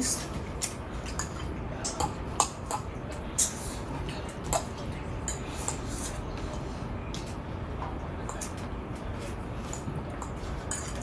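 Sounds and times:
forks clinking on ceramic plates: 9.7 - 11.0.

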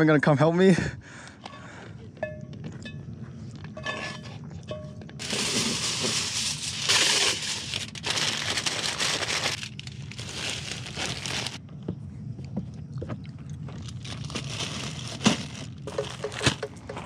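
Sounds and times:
food packaging crinkling: 5.2 - 11.6, 13.8 - 16.7.

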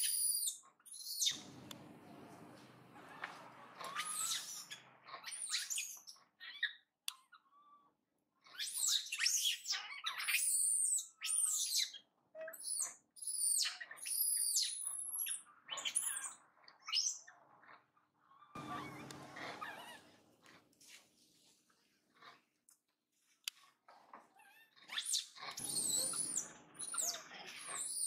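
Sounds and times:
monkey screaming: 3.0 - 6.0, 18.6 - 20.2, 24.5 - 28.0.

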